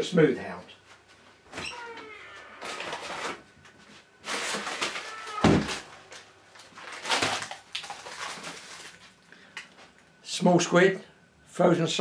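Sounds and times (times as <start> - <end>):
plastic bags rustling: 2.6 - 10.0.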